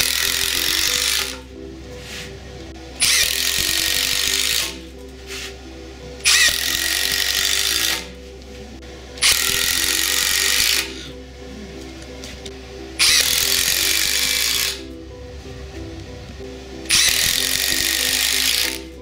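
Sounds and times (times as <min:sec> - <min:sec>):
background music: 0:00.0 - 0:19.0
impact driver impacting: 0:13.0 - 0:14.8.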